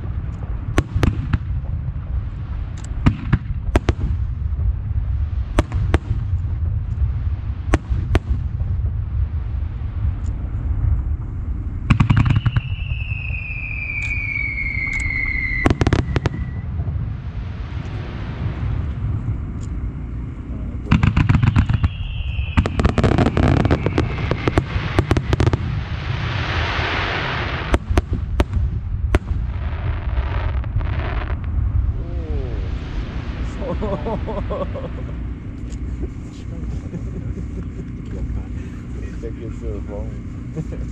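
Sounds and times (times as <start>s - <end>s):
rapid firework cracks: 0.0s - 1.8s, 11.9s - 16.9s, 20.9s - 31.6s
fireworks booming: 0.0s - 40.9s
low rumble: 0.0s - 40.9s
falling firework whistles: 11.9s - 19.0s, 20.9s - 28.5s
crackling stars hissing: 13.1s - 28.3s, 29.4s - 40.9s.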